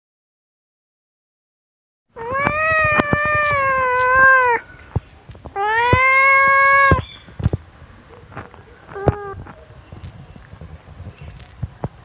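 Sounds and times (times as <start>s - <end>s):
kitten meowing: 2.2s - 4.6s, 5.6s - 7.2s, 9.0s - 9.4s.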